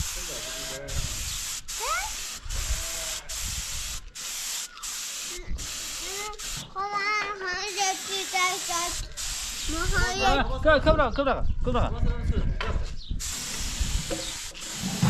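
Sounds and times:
paint spray gun hissing: 0.0 - 6.8, 7.7 - 10.1, 13.2 - 15.0
child's voice: 1.8 - 2.2, 5.3 - 9.0, 9.7 - 10.4.

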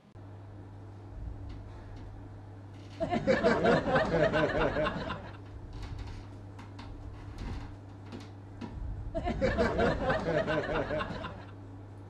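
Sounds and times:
person chuckling: 9.2 - 11.6.

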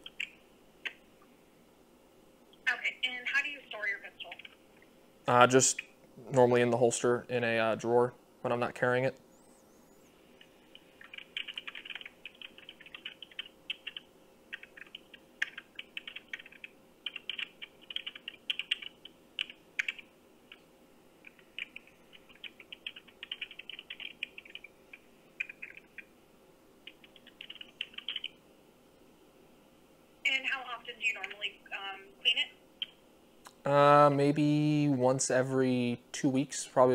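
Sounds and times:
computer keyboard typing: 0.0 - 1.0, 4.3 - 4.6, 10.4 - 20.1, 21.2 - 26.1, 26.8 - 28.4.

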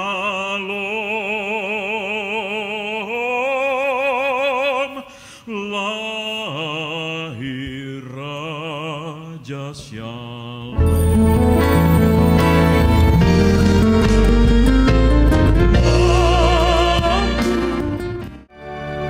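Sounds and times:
man singing hymn operatically: 0.0 - 11.0, 15.7 - 17.8.

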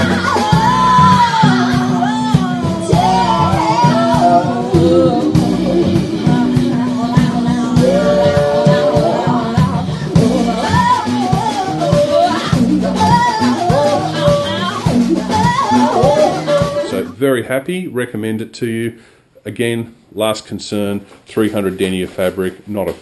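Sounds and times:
guitar: 0.0 - 17.2
person singing: 0.0 - 17.2
bass notes: 0.0 - 20.5.

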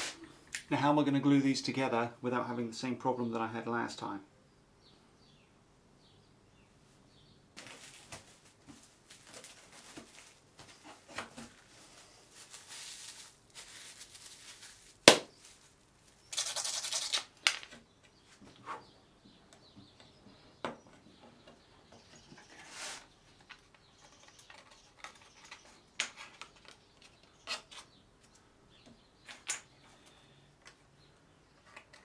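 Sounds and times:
wood veneer sheets rustling: 7.6 - 15.8, 22.2 - 25.5.

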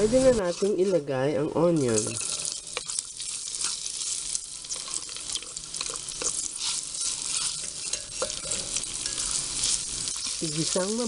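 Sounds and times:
onions sizzling in hot oil: 0.0 - 11.0
spoon scraping and clinking on glass: 4.7 - 9.4.

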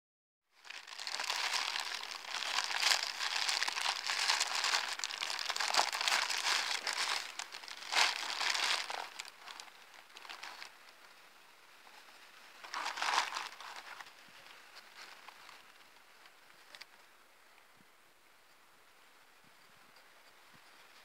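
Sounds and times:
plastic mailing bag crinkling: 0.6 - 10.7, 12.6 - 14.1.

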